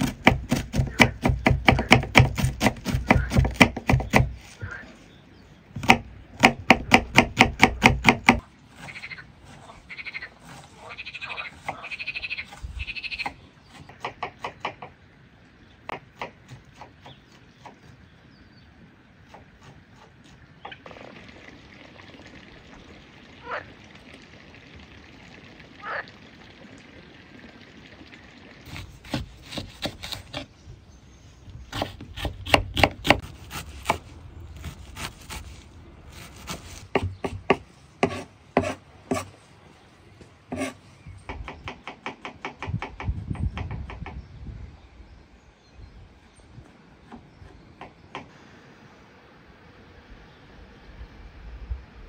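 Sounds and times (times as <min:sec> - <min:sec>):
knife chopping on wooden board: 0:00.0 - 0:04.4, 0:05.8 - 0:08.4, 0:31.7 - 0:34.0, 0:36.2 - 0:39.3.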